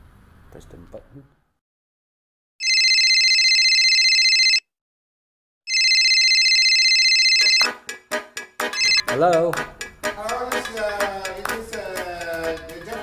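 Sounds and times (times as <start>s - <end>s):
phone ringing: 2.6s - 4.7s, 5.7s - 7.8s, 8.6s - 9.1s.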